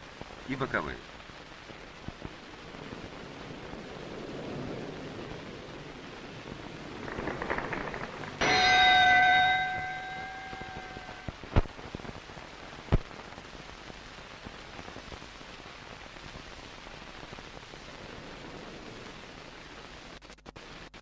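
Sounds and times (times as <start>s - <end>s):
steady hiss: 0.0s - 21.0s
sharp knocks: 7.5s - 11.3s
gong ringing: 8.4s - 11.3s.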